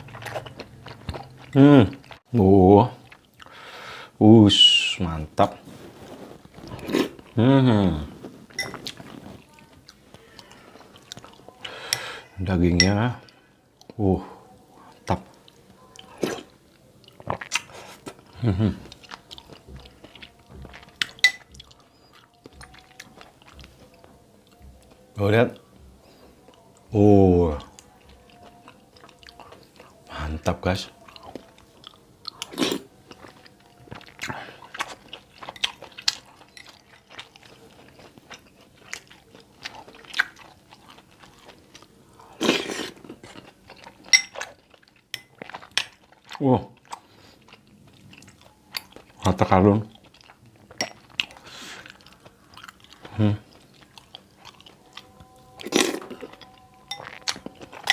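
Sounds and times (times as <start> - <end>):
soft chewing: 0.0 - 3.9, 5.3 - 57.9
spoon scraping a glass bowl: 8.5 - 9.0
spoon clinking on glass bowl: 8.6 - 8.9, 21.0 - 21.6, 44.1 - 44.5, 56.4 - 57.9.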